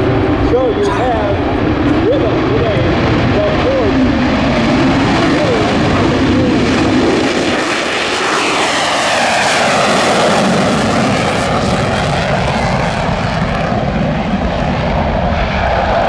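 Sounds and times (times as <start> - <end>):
jet engine in afterburner: 0.0 - 16.0.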